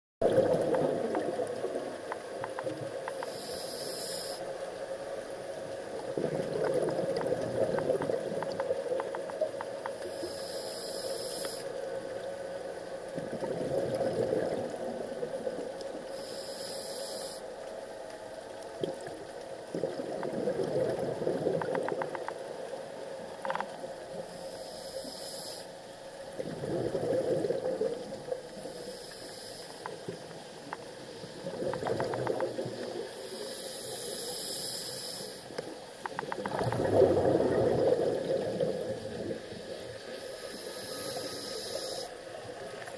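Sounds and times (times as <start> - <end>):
exhaled bubbles burbling: 0.2 - 3.0, 5.9 - 9.6, 13.1 - 16.1, 18.8 - 22.6, 26.4 - 28.6, 29.9 - 33.2, 36.1 - 40.1
regulator inhalation hiss: 3.1 - 4.6, 10.0 - 11.8, 16.1 - 17.6, 24.3 - 25.8, 28.6 - 30.0, 33.1 - 35.6, 40.1 - 42.4.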